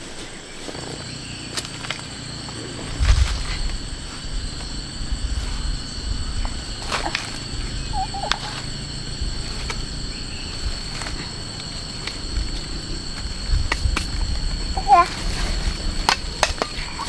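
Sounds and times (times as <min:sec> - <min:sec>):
high-pitched insect drone: 0:00.0 - 0:17.0
low rumble: 0:02.2 - 0:17.0
short wavering call: 0:07.8 - 0:08.6.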